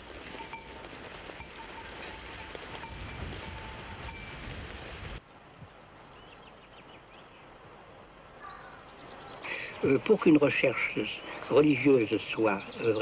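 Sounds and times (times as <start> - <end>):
sheep bells clinking: 0.0 - 4.6
low rumble of grazing flock: 0.0 - 5.2
faint chirps: 5.3 - 13.0.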